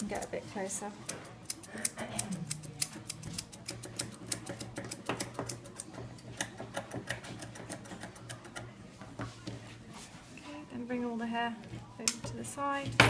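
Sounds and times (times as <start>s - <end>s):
scissors snipping fur: 1.0s - 8.6s.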